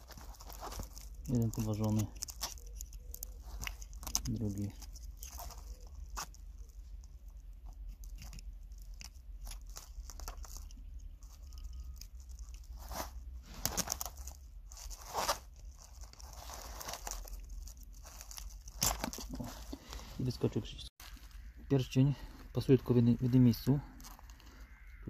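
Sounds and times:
small plastic clicks and scraping: 0.0s - 12.8s
plastic crackles: 0.0s - 20.1s, 22.8s - 24.9s.

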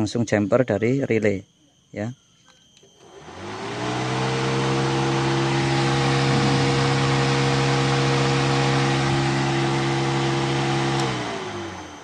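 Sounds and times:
radiator cooling fan running: 3.1s - 12.0s.

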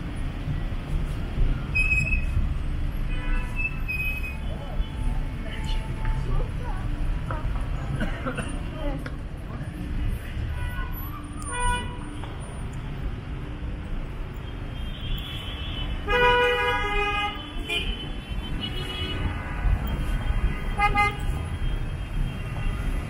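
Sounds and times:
street traffic rumble: 0.0s - 23.0s
vehicle horns honking: 14.7s - 19.6s, 20.2s - 23.0s.

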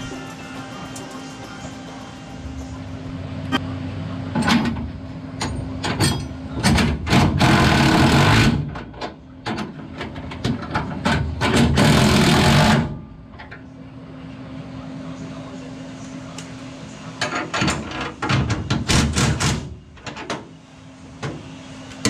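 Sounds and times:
low hum: 0.0s - 5.6s
impact wrench running: 7.0s - 8.8s, 11.4s - 12.9s.

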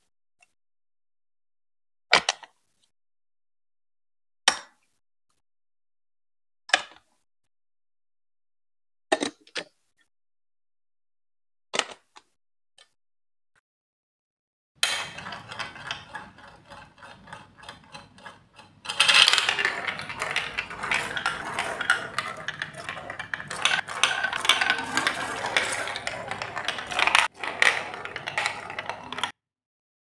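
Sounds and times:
marble rattling along chutes: 14.8s - 29.3s
marble clicking around funnel: 14.8s - 29.4s.

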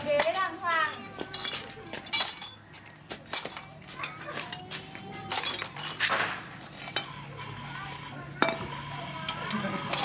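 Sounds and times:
metal tools clinking: 0.0s - 2.6s, 3.3s - 6.1s, 9.2s - 10.0s.

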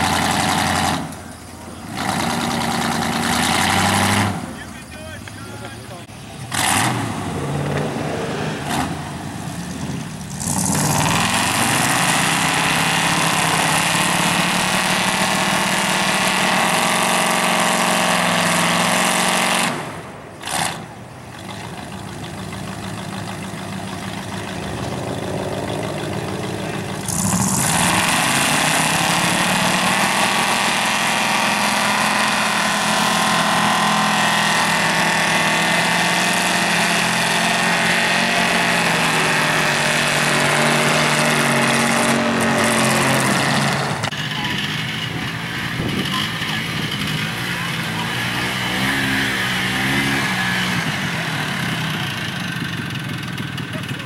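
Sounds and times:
truck engines revving hard: 0.0s - 54.0s.

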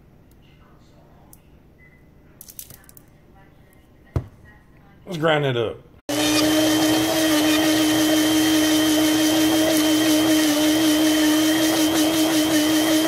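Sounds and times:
blender motor whirring: 6.1s - 13.0s.

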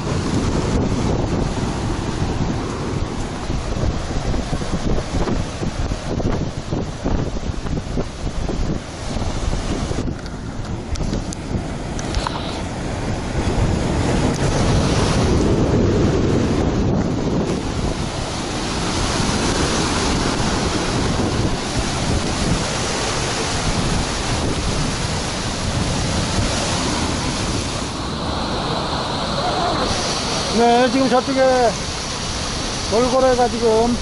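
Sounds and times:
surf breaking over rocks: 0.0s - 34.0s
wind buffeting microphone: 0.0s - 34.0s.

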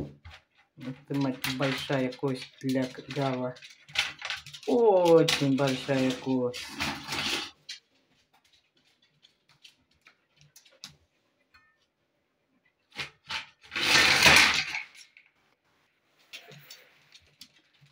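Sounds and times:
scraping rattle: 0.8s - 7.7s.

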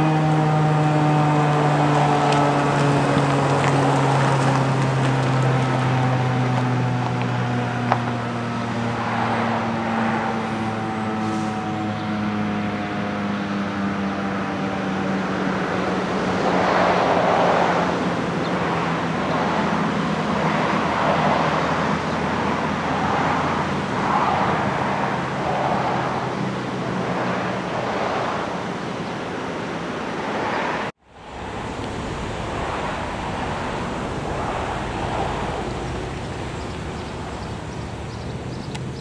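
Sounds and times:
warning siren winding down: 0.0s - 15.8s
road traffic noise: 0.0s - 39.0s.

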